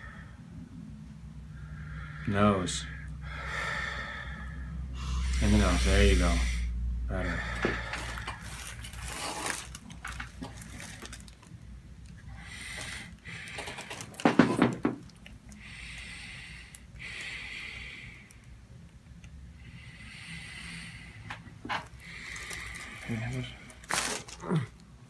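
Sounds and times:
man breathing through nose: 0:01.5 - 0:09.8, 0:12.2 - 0:14.3, 0:15.5 - 0:18.6, 0:19.5 - 0:24.3.

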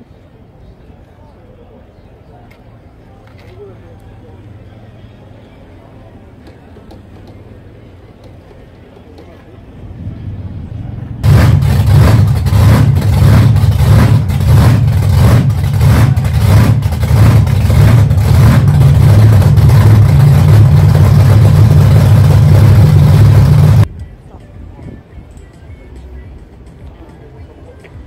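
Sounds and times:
loud monster truck engine: 0:09.1 - 0:23.9.

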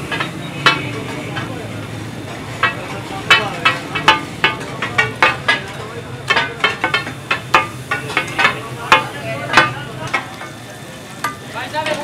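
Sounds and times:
chicken sizzling in oil: 0:00.0 - 0:12.0
cleaver chopping on iron: 0:02.6 - 0:10.4.

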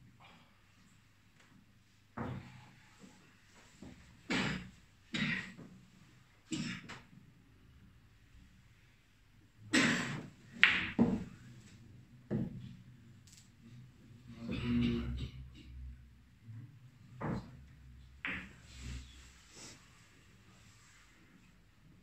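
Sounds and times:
billiard balls clacking: 0:10.6 - 0:11.4, 0:18.3 - 0:18.6.

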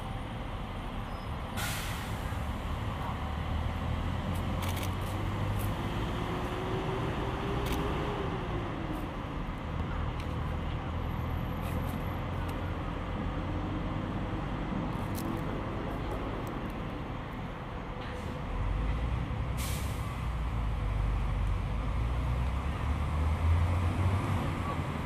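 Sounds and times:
short sharp hiss: 0:01.6 - 0:02.3, 0:19.6 - 0:20.1.

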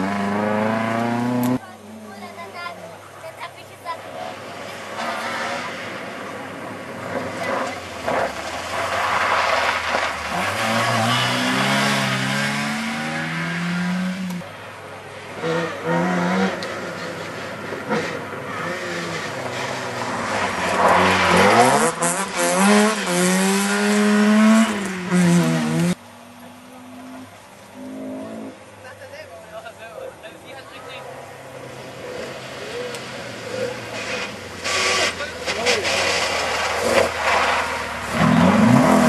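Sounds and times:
rally car engines revving: 0:00.0 - 0:02.3, 0:04.0 - 0:29.0, 0:31.0 - 0:39.0
tyres on loose gravel: 0:04.2 - 0:12.2, 0:18.5 - 0:23.2, 0:32.0 - 0:39.0.

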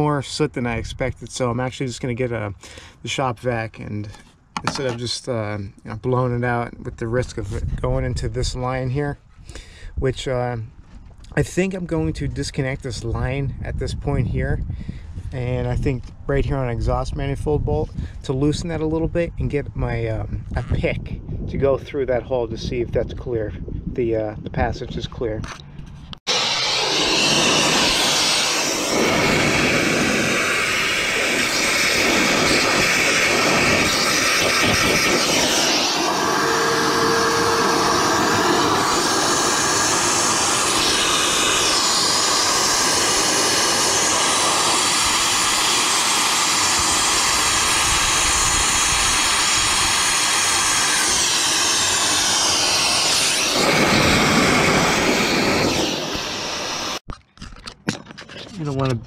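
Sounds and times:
shop vac running: 0:26.3 - 0:57.0.

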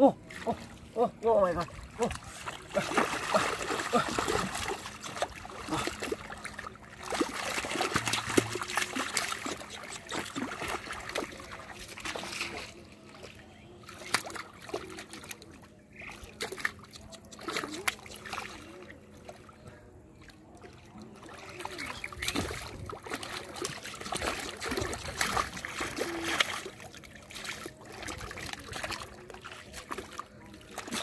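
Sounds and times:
hands splashing in muddy water: 0:01.6 - 0:13.2, 0:20.6 - 0:31.0.

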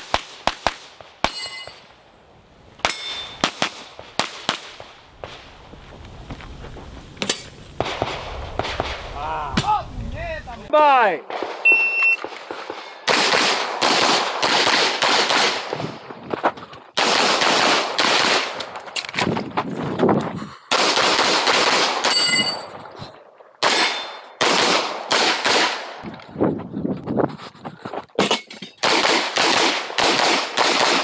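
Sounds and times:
pistol shots: 0:11.3 - 0:16.0, 0:17.0 - 0:18.8, 0:23.6 - 0:26.0, 0:28.8 - 0:31.0.

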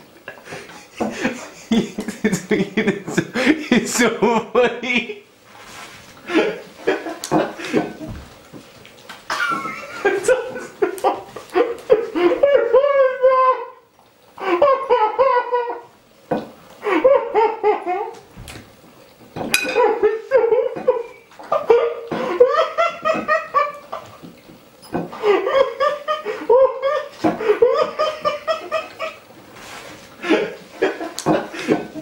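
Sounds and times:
person laughing: 0:00.3 - 0:05.2, 0:06.2 - 0:08.2, 0:09.3 - 0:15.9, 0:16.8 - 0:18.2, 0:19.8 - 0:24.2, 0:25.1 - 0:29.2, 0:30.2 - 0:32.0.

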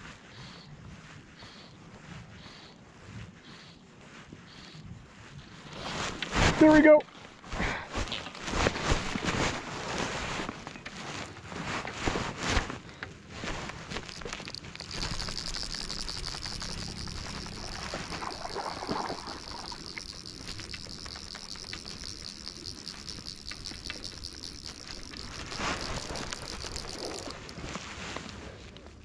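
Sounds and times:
fishing reel drag ratcheting: 0:13.4 - 0:27.7.

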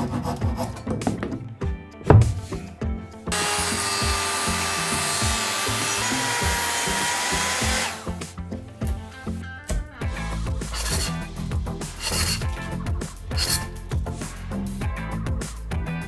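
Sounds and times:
soft background music: 0:00.0 - 0:16.0
circular saw cutting wood: 0:03.3 - 0:08.2, 0:10.6 - 0:12.5, 0:13.3 - 0:13.7
chisel strokes into wood: 0:10.6 - 0:11.2, 0:11.9 - 0:12.5.

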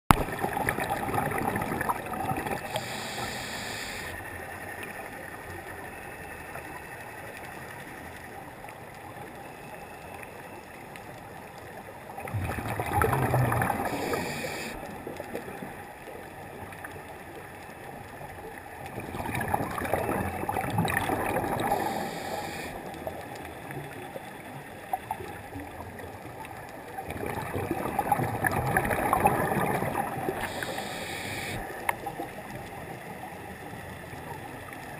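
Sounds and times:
scuba regulator bubbles gurgling: 0:00.1 - 0:07.4, 0:11.6 - 0:34.9
steady regulator hiss: 0:02.6 - 0:04.2, 0:13.8 - 0:14.8, 0:21.5 - 0:22.9, 0:30.3 - 0:31.8.

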